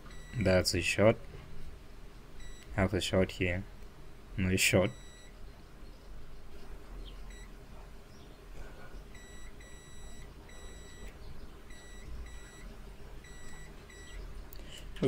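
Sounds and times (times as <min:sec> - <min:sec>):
multimeter beeping: 0:00.0 - 0:00.5, 0:02.4 - 0:02.8, 0:04.9 - 0:05.4, 0:07.3 - 0:07.5, 0:09.1 - 0:14.2.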